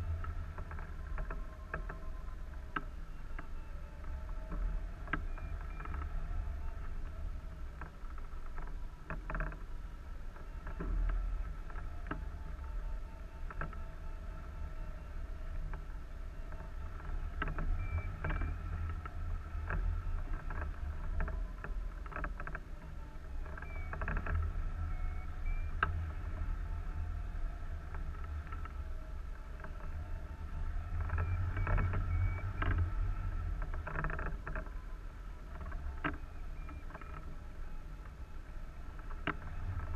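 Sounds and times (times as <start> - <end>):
wind buffeting low rumble: 0.0 - 39.9
faint high whistling: 23.6 - 24.1, 24.7 - 25.8, 31.0 - 32.9.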